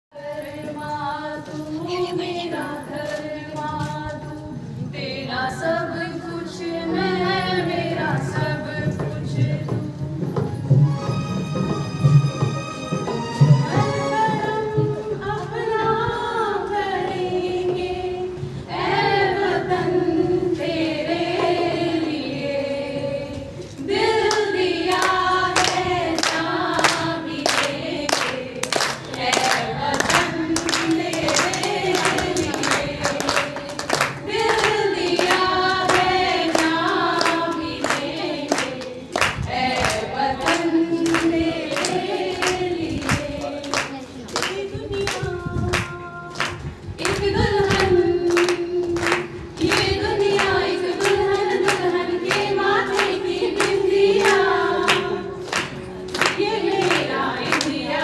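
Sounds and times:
women singing together: 0.1s - 10.6s, 13.6s - 58.0s
steady handclaps: 24.2s - 58.0s.

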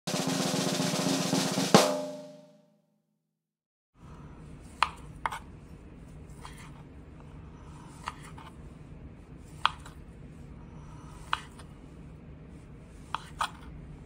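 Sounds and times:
steady low hum: 4.0s - 14.0s
knife slicing sausage: 7.8s - 8.6s, 9.5s - 10.0s, 11.0s - 11.7s, 13.0s - 13.8s.

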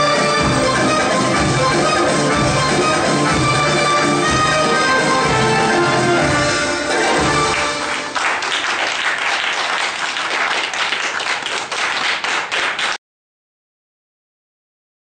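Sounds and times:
belly-dance music: 0.0s - 8.4s
audience clapping: 5.2s - 13.0s.

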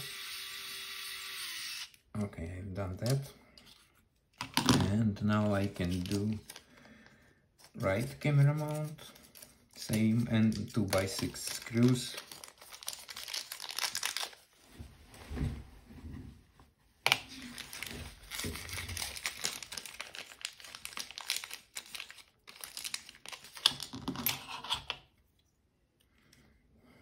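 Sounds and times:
plastic bag crinkling: 5.4s - 14.6s, 17.2s - 24.0s.

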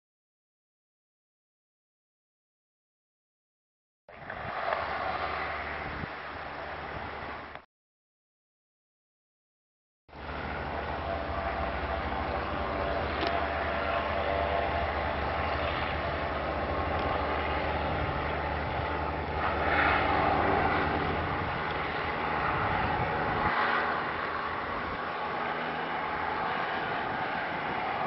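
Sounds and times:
low engine drone: 4.1s - 7.6s, 10.1s - 28.0s
propeller rushing: 4.1s - 7.6s, 10.1s - 28.0s.

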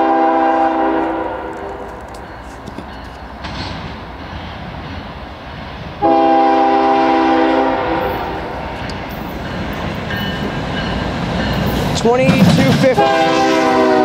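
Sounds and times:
locomotive air horn chord: 0.0s - 1.9s, 6.0s - 8.4s, 13.0s - 14.0s
locomotive rumble: 0.0s - 14.0s.

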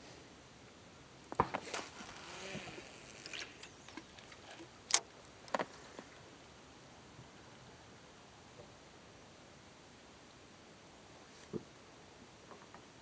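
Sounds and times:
fishing line hissing off reel: 1.6s - 5.0s
reel clicks: 1.6s - 5.7s.

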